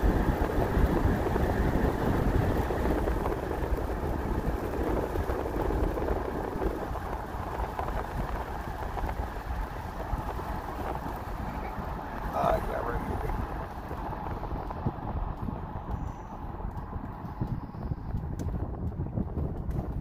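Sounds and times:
tyre and wind noise inside vehicle: 0.0 - 20.0.

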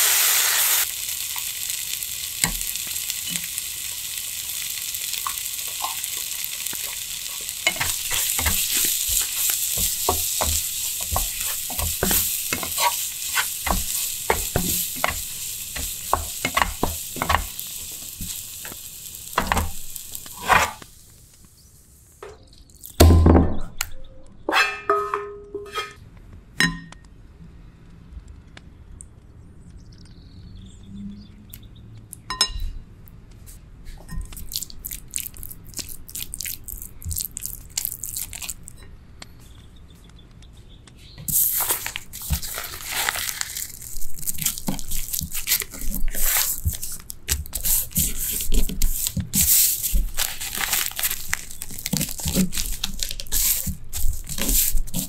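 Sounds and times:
nori sheet crinkling and tearing: 34.4 - 38.7, 41.3 - 55.0.

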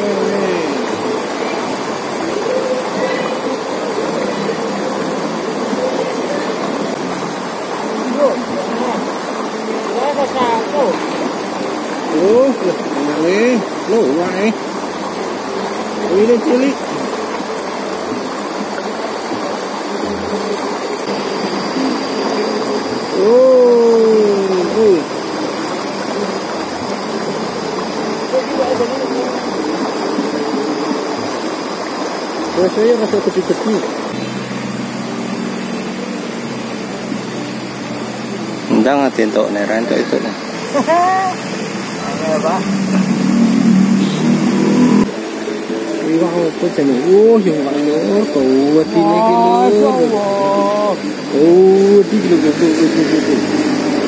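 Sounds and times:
faint wavering hum: 0.0 - 54.0
stream rushing over rocks: 0.0 - 54.0
loud drawn-out falling tone: 34.1 - 54.0.

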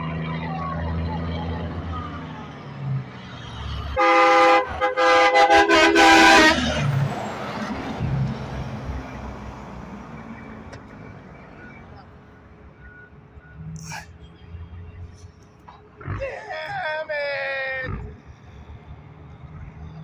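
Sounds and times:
truck engine and tyre noise: 0.0 - 20.0
truck air horn blasts: 3.9 - 6.9.

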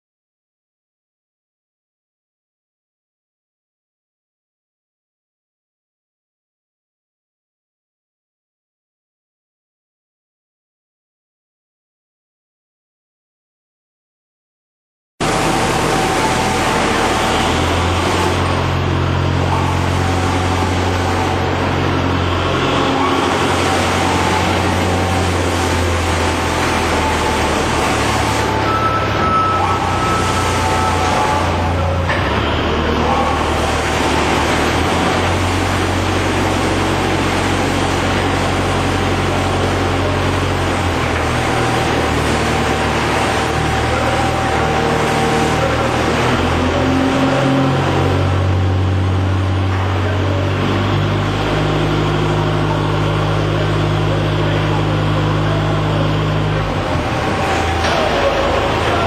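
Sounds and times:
scrap shredder running: 15.2 - 59.0.

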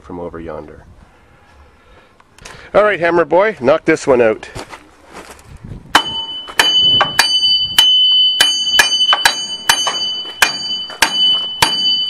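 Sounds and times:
hammer striking steel: 6.0 - 12.0.

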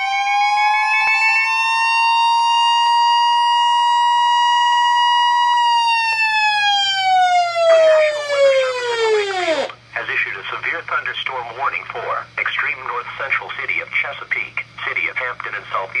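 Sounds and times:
siren winding down: 0.0 - 9.8
weather radio alert tone: 7.4 - 9.7
spoken warning message: 9.9 - 16.0.

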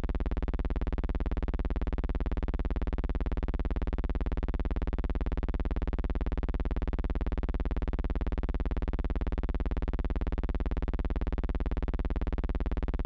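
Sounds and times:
electrical hum with flutter: 0.0 - 13.0.

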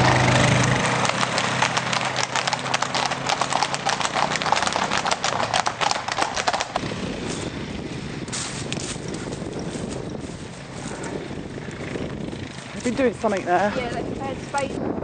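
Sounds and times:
horse hooves clip-clopping on road: 0.0 - 7.5
quad bike engine hum: 0.0 - 15.0
wind on microphone: 1.7 - 15.0.

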